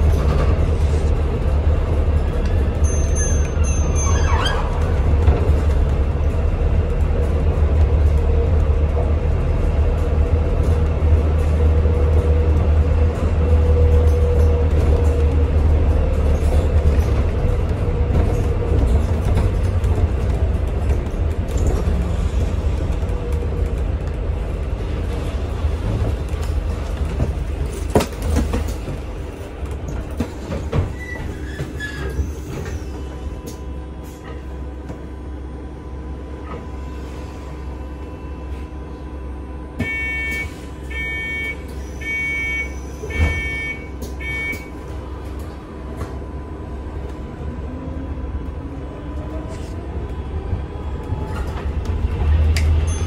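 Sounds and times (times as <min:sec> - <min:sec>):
bus engine rumble: 0:00.0 - 0:53.0
short electronic beeps: 0:39.8 - 0:44.7.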